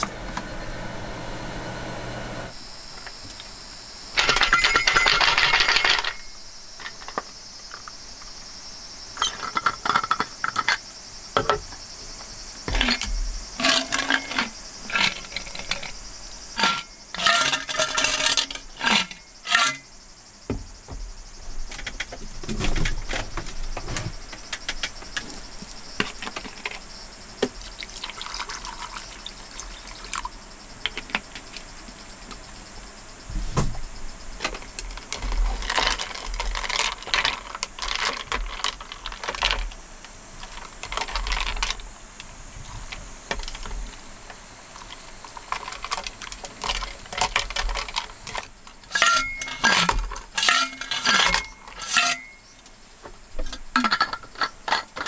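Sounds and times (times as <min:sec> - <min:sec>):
ice cubes clinking on metal: 0:04.2 - 0:07.2, 0:12.7 - 0:16.0, 0:16.6 - 0:19.9, 0:44.8 - 0:52.5, 0:53.5 - 0:55.0
chopsticks scraping metal bowl: 0:16.6 - 0:19.9, 0:48.9 - 0:52.4
water pouring: 0:27.7 - 0:30.2.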